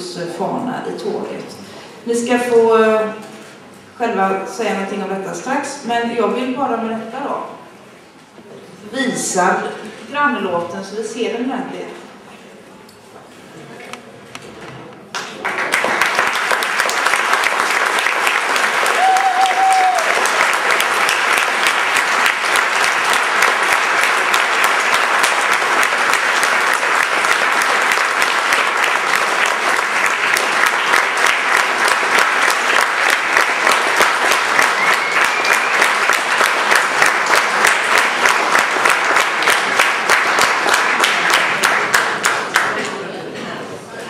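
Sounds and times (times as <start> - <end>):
audience applauding: 15.1 - 42.8.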